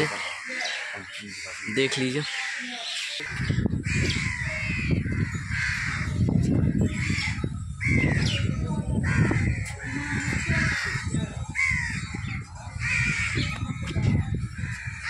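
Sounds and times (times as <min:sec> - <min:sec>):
crows cawing: 0:00.0 - 0:13.8, 0:14.5 - 0:15.0.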